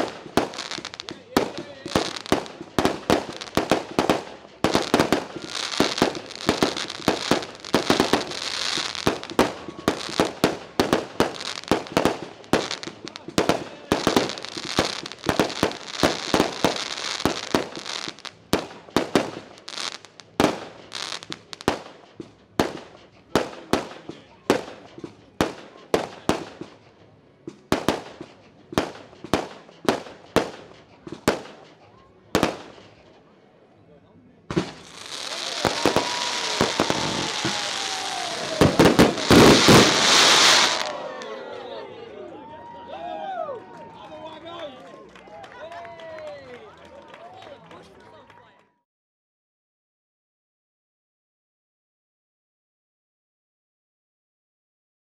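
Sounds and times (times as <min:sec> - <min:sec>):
fireworks bangs: 0:00.0 - 0:26.9, 0:27.5 - 0:33.0, 0:34.5 - 0:41.2
fireworks crackling hiss: 0:00.0 - 0:33.2, 0:34.5 - 0:41.1.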